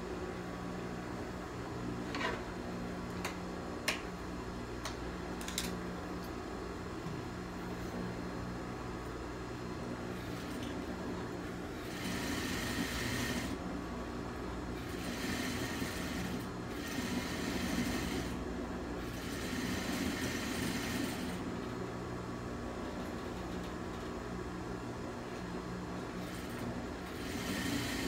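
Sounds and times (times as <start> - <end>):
steady low hum: 0.0 - 28.0
sewing machine stitching: 11.7 - 13.6, 14.8 - 18.4, 19.0 - 21.4, 26.2 - 28.0.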